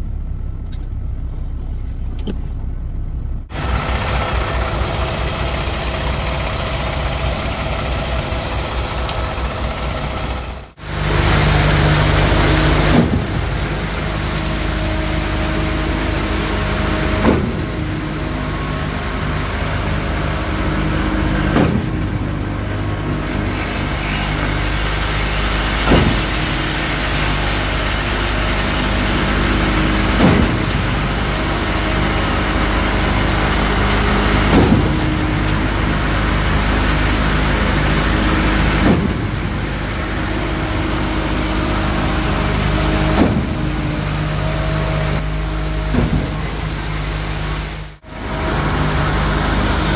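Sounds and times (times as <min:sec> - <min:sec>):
truck engine running: 0:00.0 - 0:49.9
pump clunking: 0:11.1 - 0:47.4.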